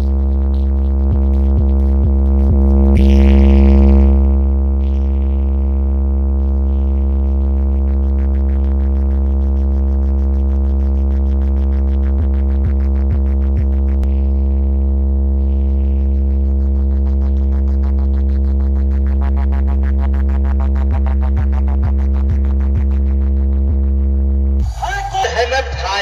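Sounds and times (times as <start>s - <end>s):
deep bass tone: 0.0s - 26.0s
kick drum beats: 1.0s - 3.2s
dance music: 24.6s - 26.0s.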